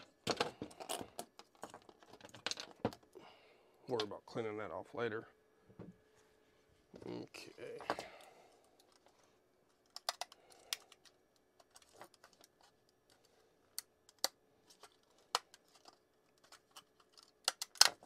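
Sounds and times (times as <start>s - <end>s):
hard plastic parts clicking: 9.8s - 12.5s.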